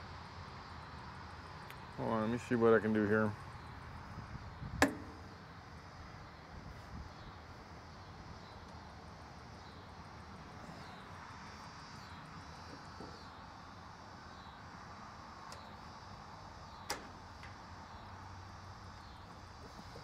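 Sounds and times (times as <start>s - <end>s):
sharp click: 4.8s - 5.2s.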